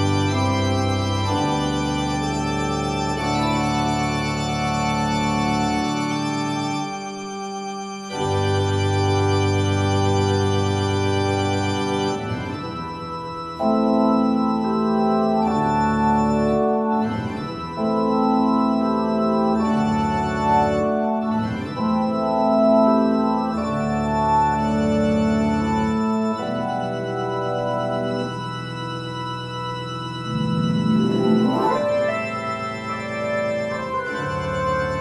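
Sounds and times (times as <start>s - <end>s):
organ chords: 0.0s - 35.0s
deep bass organ note: 8.1s - 35.0s.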